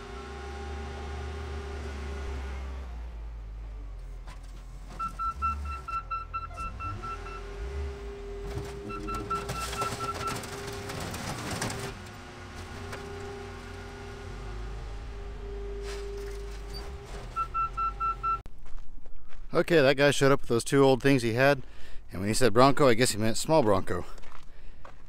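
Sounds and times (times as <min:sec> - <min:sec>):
wheel loader engine running: 0:00.0 - 0:18.4
backup alarm rapid beeps: 0:05.0 - 0:07.5, 0:08.8 - 0:10.4, 0:16.7 - 0:18.4
metal clattering: 0:08.4 - 0:13.4.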